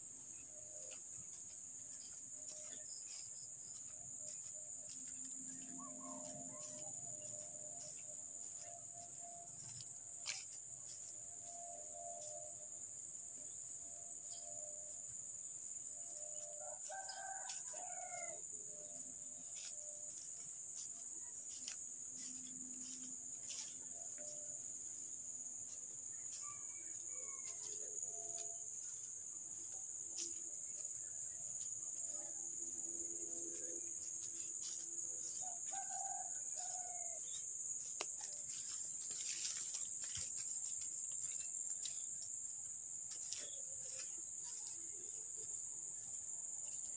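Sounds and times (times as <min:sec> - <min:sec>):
footsteps through dry grass: 0:00.0 - 0:12.5, 0:16.1 - 0:32.1, 0:33.5 - 0:45.6
insects buzzing: 0:00.0 - 0:46.9
rooster crowing: 0:16.3 - 0:18.9, 0:26.1 - 0:28.5, 0:35.2 - 0:37.5.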